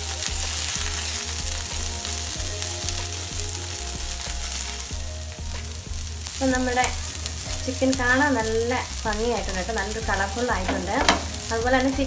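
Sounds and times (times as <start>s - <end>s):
chicken sizzling in frying pan: 0.0s - 12.0s.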